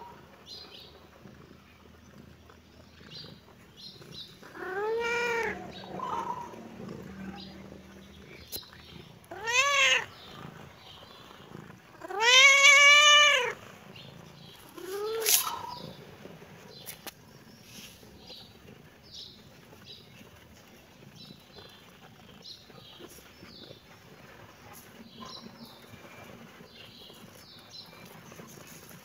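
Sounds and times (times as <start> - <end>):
cat meowing: 4.4 - 7.6, 9.2 - 10.2, 12.0 - 13.6, 14.7 - 15.8.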